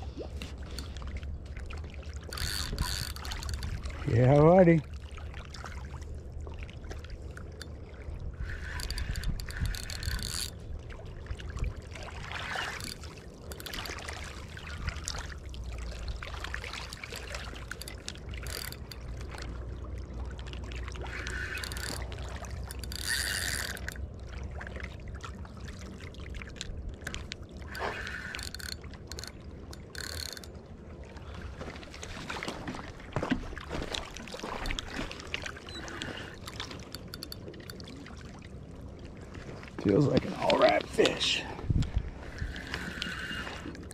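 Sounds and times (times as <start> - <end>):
low steady rumble: 0.0 - 32.2
water lapping on rocky shore: 0.0 - 43.9
fishing reel whirring: 2.2 - 3.8, 7.4 - 10.6, 12.3 - 14.1, 16.5 - 19.6, 21.0 - 24.1, 27.7 - 30.6, 35.6 - 37.8, 42.2 - 43.9.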